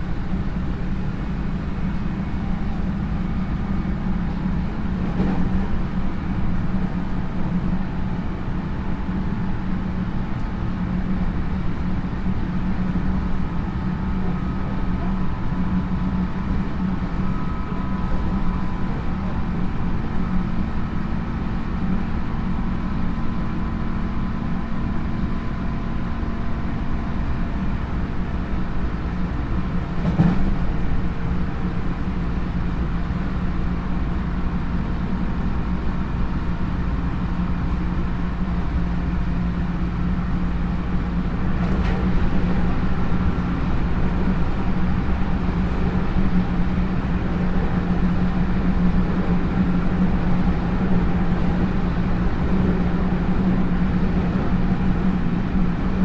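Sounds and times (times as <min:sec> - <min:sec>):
train traction motor hum: 0:00.0 - 0:56.0
wheel on rail rumble: 0:00.0 - 0:56.0.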